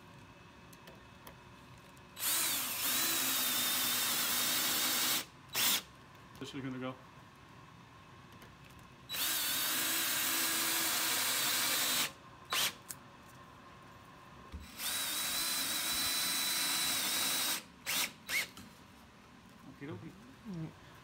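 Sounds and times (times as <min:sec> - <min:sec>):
power drill into wood: 0:02.2 - 0:05.9, 0:09.1 - 0:12.8, 0:14.6 - 0:18.6.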